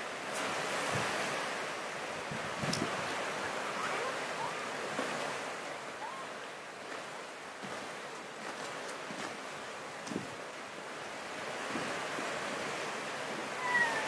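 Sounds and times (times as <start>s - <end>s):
flowing water rushing: 0.0s - 14.0s
wind: 0.0s - 14.0s.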